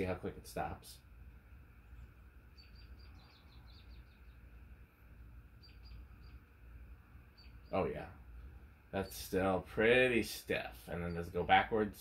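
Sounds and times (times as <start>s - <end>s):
low steady hum: 0.0s - 12.0s
faint high chirps: 1.9s - 4.8s, 5.4s - 9.6s, 10.7s - 11.7s.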